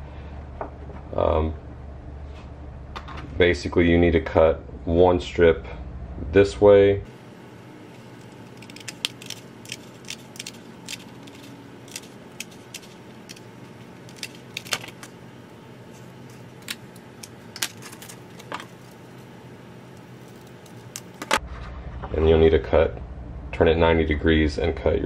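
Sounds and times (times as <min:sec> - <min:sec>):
scissors snipping plastic: 0:08.2 - 0:15.1.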